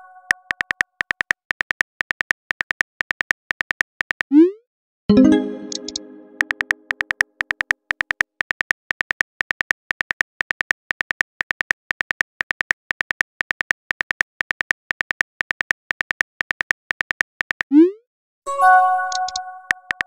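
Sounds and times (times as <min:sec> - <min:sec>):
keyboard typing clicks: 0:00.2 - 0:03.7, 0:05.1 - 0:12.1, 0:19.0 - 0:20.0.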